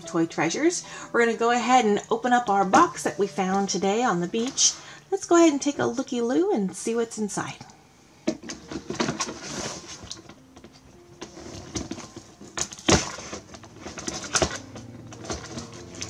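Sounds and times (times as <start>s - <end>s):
cardboard tearing and rustling: 8.4s - 10.4s, 11.2s - 16.0s
cardboard cracking: 8.4s - 16.0s.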